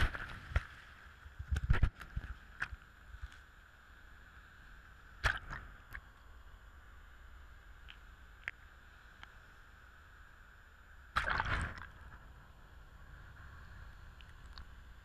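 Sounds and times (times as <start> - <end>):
wind: 0.0 - 15.0
faint ticks: 1.4 - 3.6, 7.7 - 9.5, 14.1 - 14.8.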